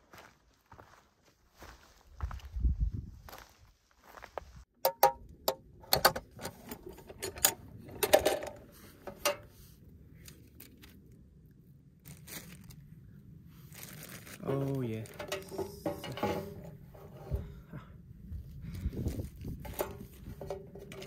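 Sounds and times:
plastic bag rustling: 12.0 - 12.9, 13.5 - 16.7
metal can lid clanking: 15.2 - 17.4, 19.6 - 21.0.

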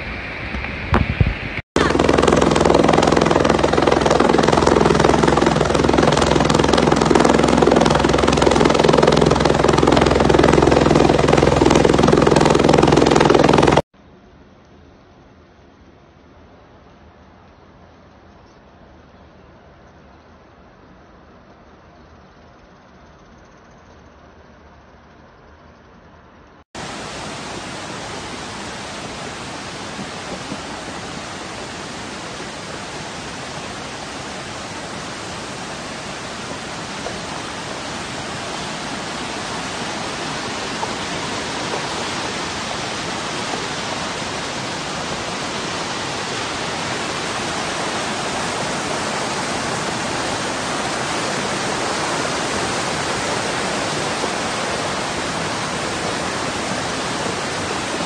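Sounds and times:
floodwater rushing: 1.8 - 13.8, 26.8 - 58.0.

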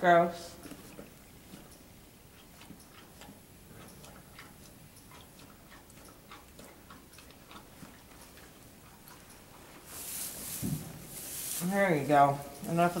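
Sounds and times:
soft clicks and rustles in straw: 9.7 - 12.9.

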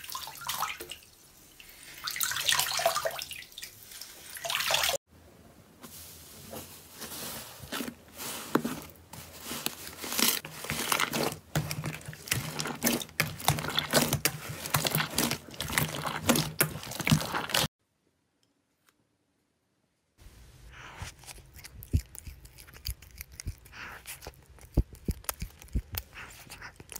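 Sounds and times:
hands squishing slime: 9.5 - 17.7.

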